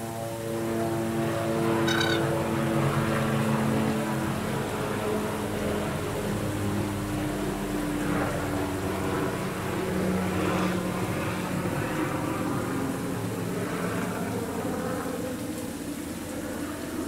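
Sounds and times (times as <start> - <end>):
low mechanical drone: 0.0 - 7.3
low hum tones drifting in pitch: 1.1 - 2.8.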